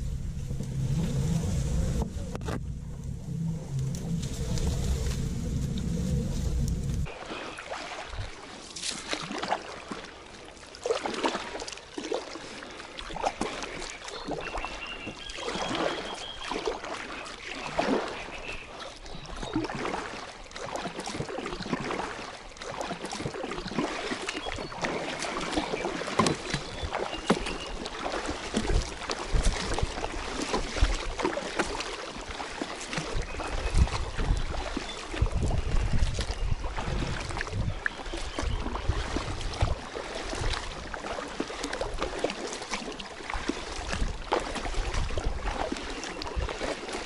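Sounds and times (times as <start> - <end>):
low rumbling: 0.0 - 7.1
paddle strokes splashing water: 0.0 - 47.0.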